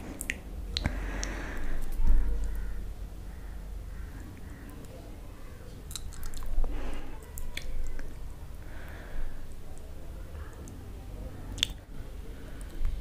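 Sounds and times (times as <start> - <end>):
fingers squishing wet food: 5.7 - 8.2, 11.5 - 11.9.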